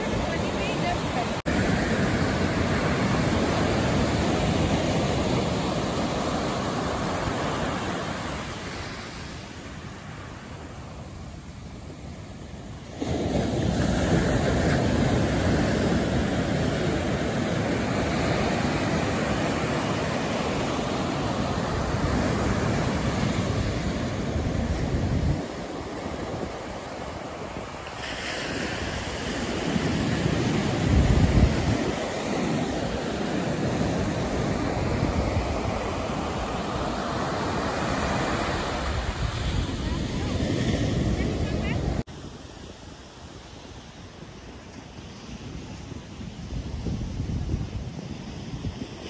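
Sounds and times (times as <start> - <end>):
ocean surf breaking: 0.0 - 46.4
wind buffeting microphone: 10.7 - 42.1, 45.4 - 49.0.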